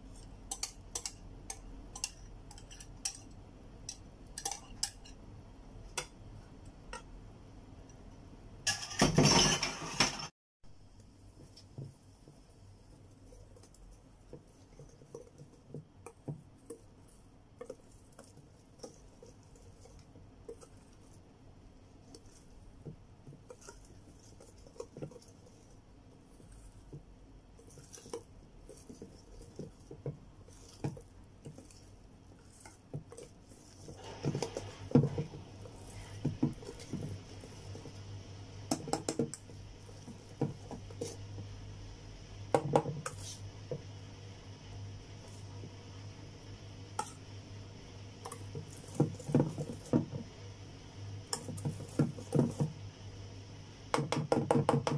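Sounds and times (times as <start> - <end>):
whisk squishing batter: 0.0 - 7.1, 10.8 - 43.9, 47.0 - 53.0, 53.9 - 54.9
whisk clicking against metal bowl: 0.2 - 5.2.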